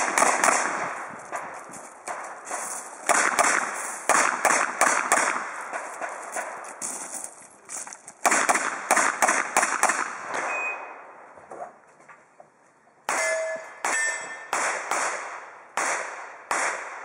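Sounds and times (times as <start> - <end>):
revolver gunshots with echo: 0.0 - 1.5, 3.0 - 6.2, 8.2 - 11.0, 13.1 - 17.0
high beep: 10.5 - 11.0.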